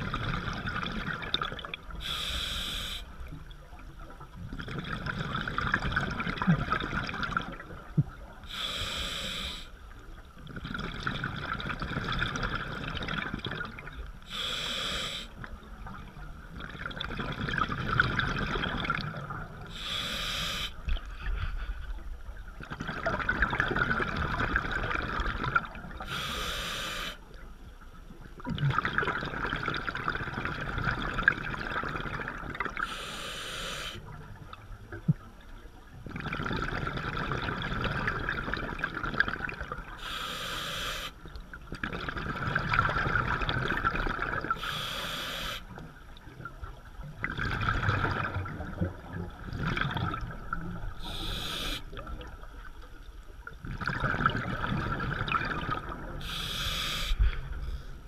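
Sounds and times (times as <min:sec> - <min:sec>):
exhaust bubbling underwater: 0:00.0 - 0:02.3, 0:03.3 - 0:08.6, 0:10.4 - 0:14.4, 0:15.4 - 0:19.8, 0:22.5 - 0:26.1, 0:28.4 - 0:32.8, 0:34.1 - 0:40.0, 0:41.4 - 0:44.6, 0:45.9 - 0:52.8, 0:53.4 - 0:57.7
regulator inhale hiss: 0:02.0 - 0:03.2, 0:08.5 - 0:09.8, 0:14.3 - 0:15.4, 0:19.7 - 0:21.9, 0:26.0 - 0:27.2, 0:32.8 - 0:34.1, 0:40.0 - 0:41.2, 0:44.6 - 0:45.7, 0:51.0 - 0:52.0, 0:56.2 - 0:58.0.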